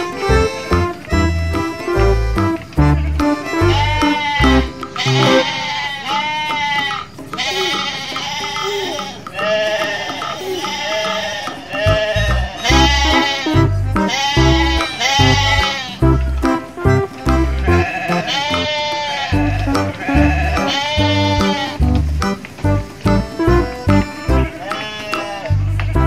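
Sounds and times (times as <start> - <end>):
music with heavy bass beat: 0.2 - 5.5, 11.9 - 17.9, 19.4 - 24.6, 25.5 - 26.0
sheep-like bleats: 3.7 - 16.0, 17.6 - 21.8, 24.6 - 25.6.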